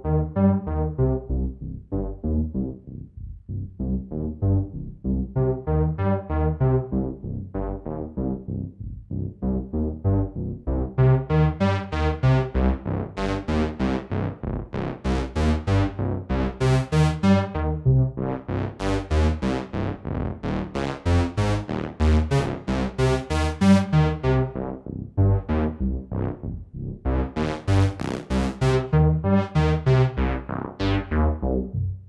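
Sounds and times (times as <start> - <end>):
synthesizer playing plucky notes: 28.4 - 31.2.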